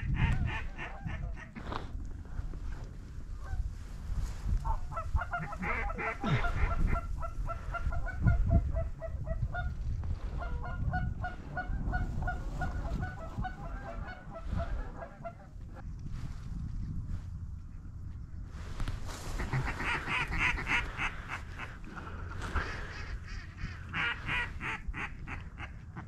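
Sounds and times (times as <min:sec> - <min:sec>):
goose honking: 0:04.7 - 0:09.7, 0:10.4 - 0:15.8, 0:19.4 - 0:25.8.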